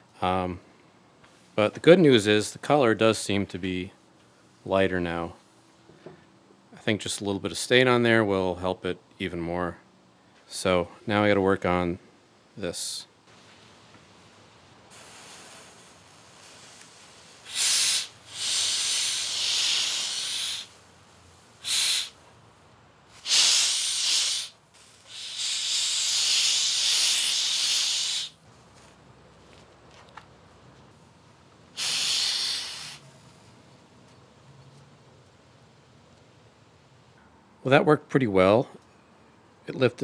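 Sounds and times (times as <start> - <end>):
steam hissing from iron: 14.9 - 22.2, 23.1 - 28.4, 31.8 - 33.1.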